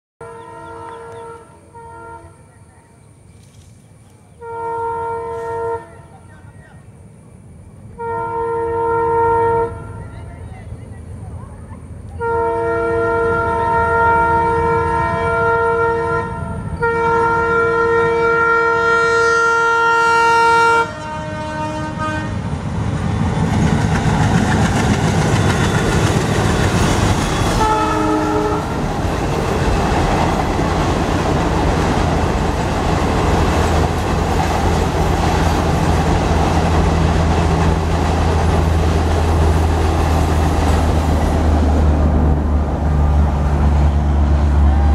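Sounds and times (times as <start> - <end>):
locomotive air horn: 0.2 - 2.5, 4.4 - 6.2, 7.9 - 10.1, 12.2 - 22.4, 27.2 - 28.9
train wheels clattering: 22.8 - 41.6.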